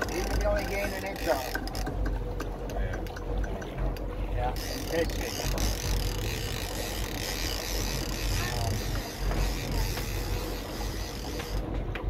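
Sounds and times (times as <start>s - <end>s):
boat engine rumble and water hiss: 0.0s - 12.0s
wind: 0.0s - 12.0s.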